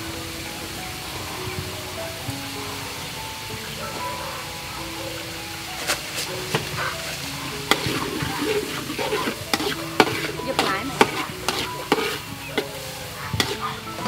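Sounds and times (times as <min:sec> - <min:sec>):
food sizzling in wok: 0:00.0 - 0:14.0
spatula scraping wok: 0:05.9 - 0:14.0
spatula clinking against wok: 0:07.6 - 0:14.0.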